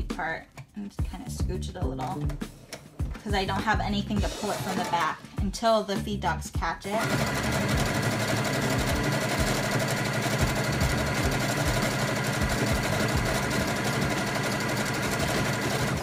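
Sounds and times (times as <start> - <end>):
sewing machine stitching: 7.0 - 16.0.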